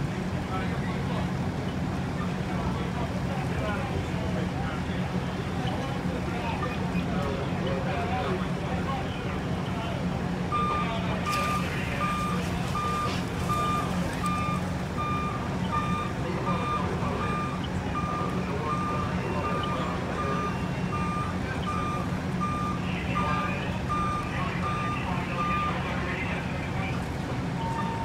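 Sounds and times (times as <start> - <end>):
truck engine drone: 0.0 - 28.0
vehicle backup alarm beeping: 9.0 - 28.0.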